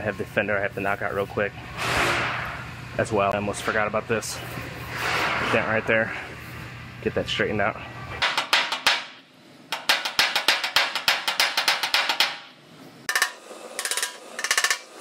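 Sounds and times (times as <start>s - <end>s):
hammer tapping sheet metal: 8.2s - 12.5s, 13.1s - 15.0s.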